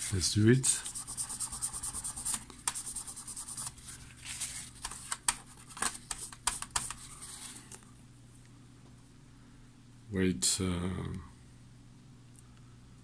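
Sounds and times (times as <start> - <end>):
paper towel scrubbing plastic: 0.0 - 7.6.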